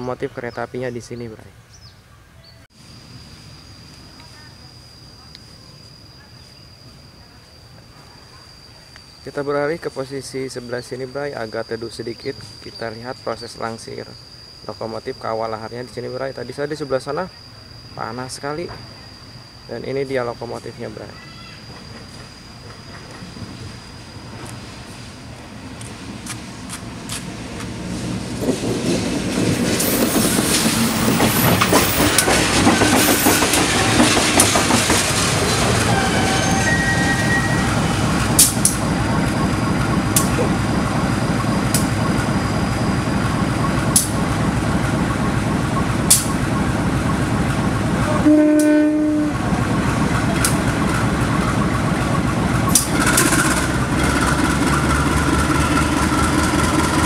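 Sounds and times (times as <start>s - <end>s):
locomotive engine rumbling: 2.2s - 57.0s
wheels clicking over rail joints: 25.8s - 36.0s, 49.4s - 57.0s.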